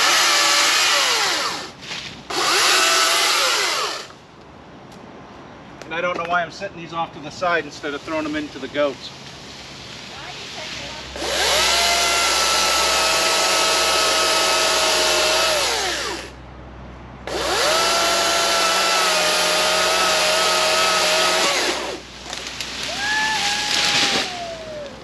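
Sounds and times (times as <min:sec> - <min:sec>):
chainsaw cutting high whine: 0:00.0 - 0:04.2, 0:11.2 - 0:16.4, 0:17.3 - 0:22.0
branches crashing as tree falls: 0:21.7 - 0:24.9.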